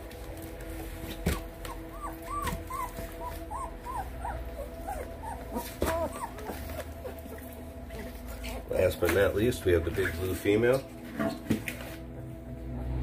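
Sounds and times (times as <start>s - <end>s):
puppy whimpering: 1.3s - 8.8s.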